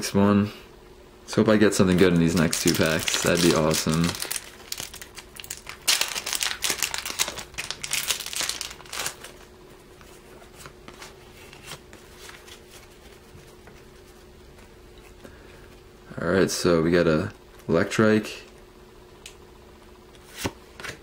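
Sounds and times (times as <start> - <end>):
foil wrapper crinkling: 1.8 - 9.5.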